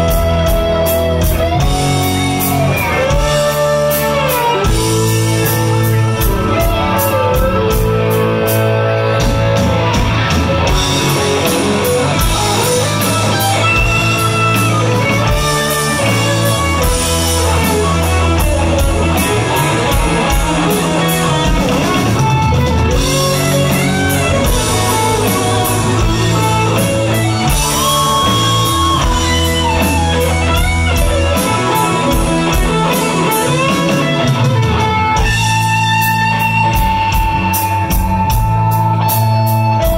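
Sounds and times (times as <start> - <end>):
electric guitar bending notes: 0.0 - 39.9
rock band playing: 0.0 - 39.9
steady bass line: 0.0 - 39.9.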